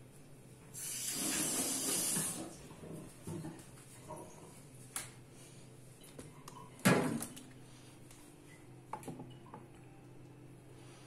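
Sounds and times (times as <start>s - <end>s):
low steady hum: 2.5s - 11.0s.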